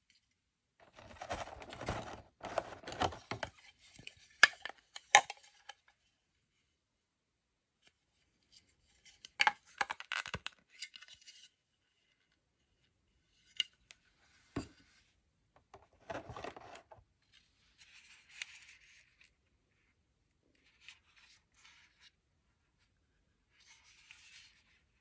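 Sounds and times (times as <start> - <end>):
soft plastic rustle: 0.8 - 4.4.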